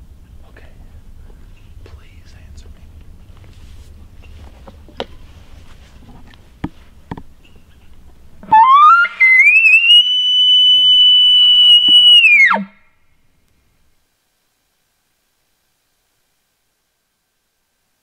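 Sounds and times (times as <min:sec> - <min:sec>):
elk bugling: 0:08.4 - 0:12.8.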